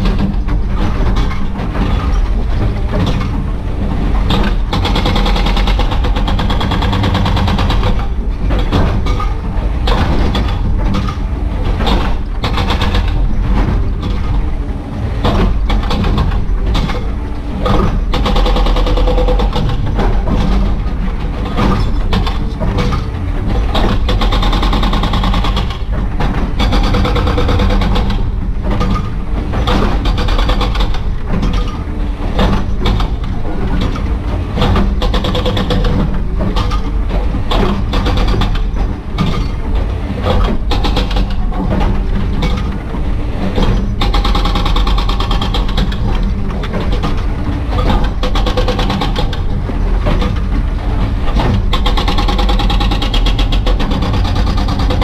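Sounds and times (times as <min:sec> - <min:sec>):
hydraulic breaker hammering rock: 0:00.0 - 0:55.0.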